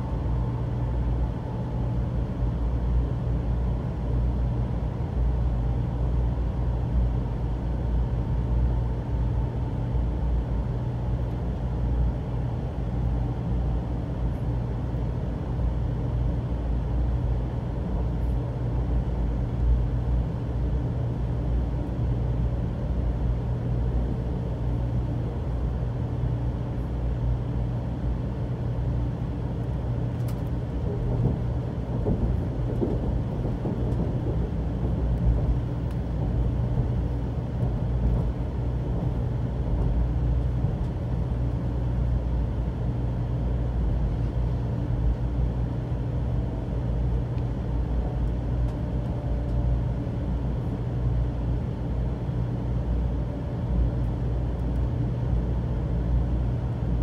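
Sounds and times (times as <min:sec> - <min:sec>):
constant low hum: 0:00.0 - 0:57.0
train wheels rumbling: 0:30.1 - 0:40.0.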